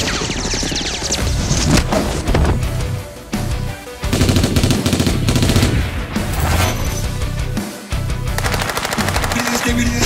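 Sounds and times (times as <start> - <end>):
dramatic background music: 0.0 - 10.0
machine-gun fire: 4.1 - 5.9, 8.3 - 9.9.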